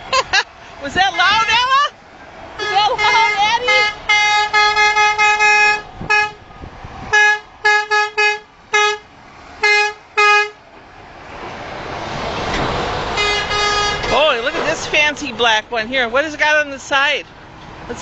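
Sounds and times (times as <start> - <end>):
truck horn honking: 2.6 - 6.4, 7.1 - 10.6, 13.1 - 14.4
truck rolling past: 8.5 - 18.0.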